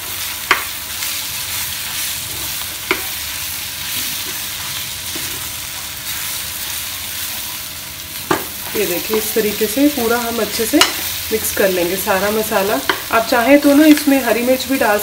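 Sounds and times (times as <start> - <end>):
food sizzling in oil: 0.0 - 15.0.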